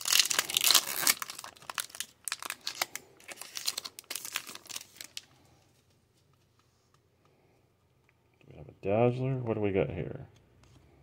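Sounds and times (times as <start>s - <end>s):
foil wrapper crinkling: 0.0s - 5.5s.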